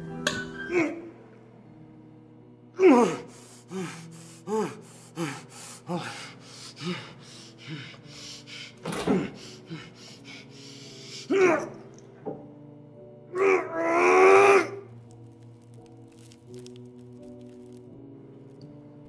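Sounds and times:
low music drone: 0.0s - 19.0s
person gasping for breath: 3.1s - 11.4s.

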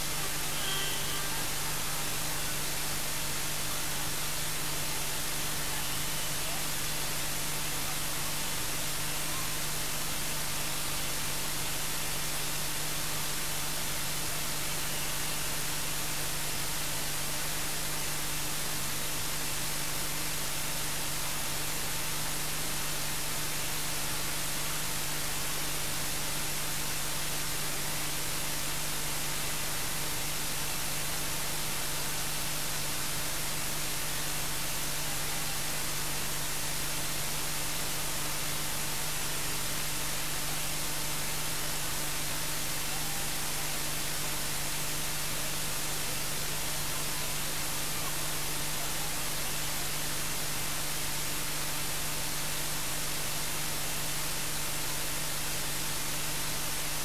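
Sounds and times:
electronic static hiss: 0.0s - 57.0s
faint steady hum: 0.0s - 57.0s.

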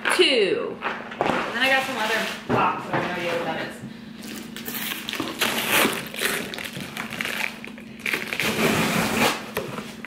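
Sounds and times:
cardboard box tearing: 4.7s - 9.5s.

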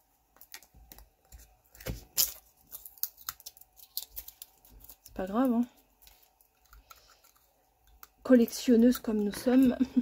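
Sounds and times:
plastic packaging crinkling and ripping: 0.4s - 7.5s.

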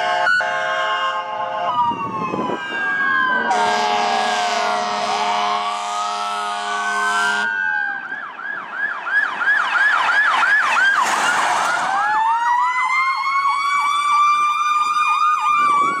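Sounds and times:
fire engine air horn: 0.0s - 7.8s
wailing siren: 0.0s - 16.0s
yelp siren: 0.0s - 16.0s.

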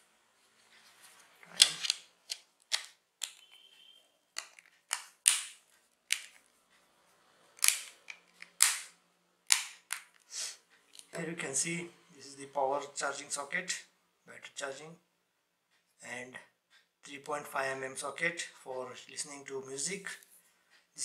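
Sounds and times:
plastic phone cover clicks: 4.4s - 6.4s, 7.6s - 8.9s.

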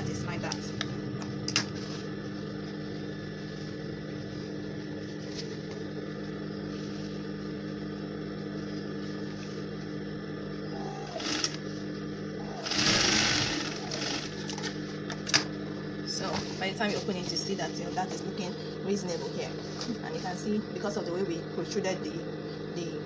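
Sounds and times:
sewing machine motor humming: 10.9s - 11.7s, 12.4s - 14.9s.

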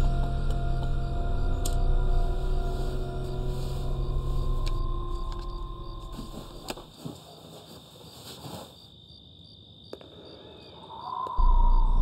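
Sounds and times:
low music drone: 0.0s - 6.9s
faint crickets: 0.0s - 12.0s.

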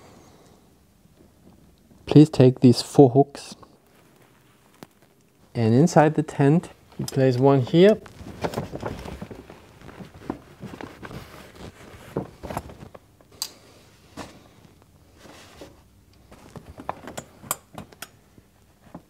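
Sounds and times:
tent fabric rustling: 8.0s - 13.0s.

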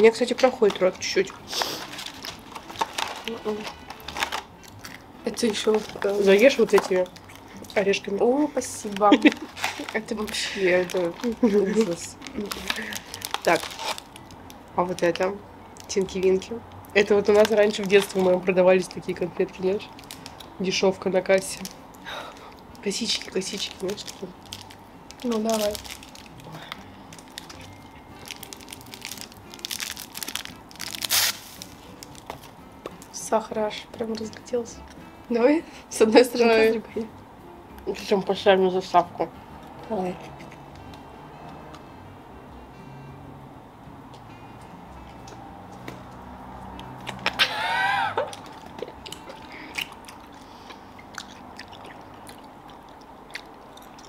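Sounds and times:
plastic wrapper crinkling: 0.1s - 20.6s, 21.4s - 33.2s, 48.2s - 49.4s
packet ripping open: 0.7s - 7.4s, 8.9s - 14.4s, 20.0s - 20.5s, 23.5s - 32.5s
chewing gummy candy: 48.3s - 54.0s.

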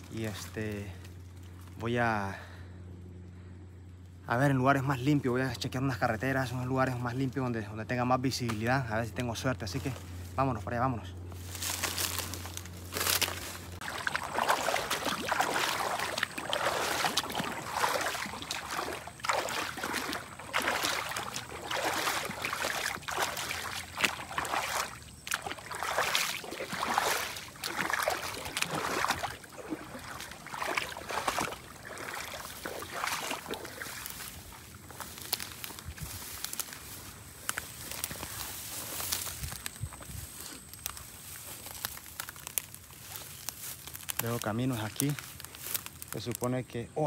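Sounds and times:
brushing through dry grass: 11.2s - 46.2s
boots splashing through water: 11.4s - 46.3s.

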